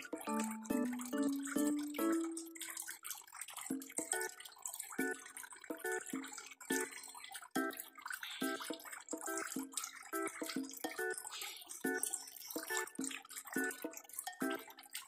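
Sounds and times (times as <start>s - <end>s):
plucked-note background music: 0.0s - 2.8s
water splashing and dripping: 0.0s - 15.0s.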